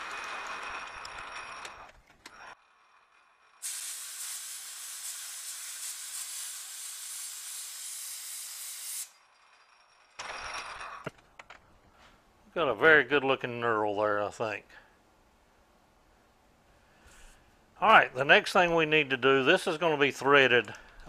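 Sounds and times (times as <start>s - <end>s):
compressed air hissing from nozzle: 3.6s - 9.1s.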